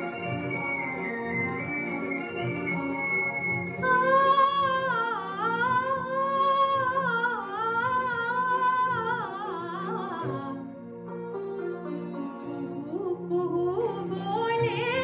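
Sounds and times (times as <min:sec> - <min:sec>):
backing track music: 0:00.0 - 0:15.0
woman singing: 0:03.8 - 0:10.6, 0:12.6 - 0:15.0.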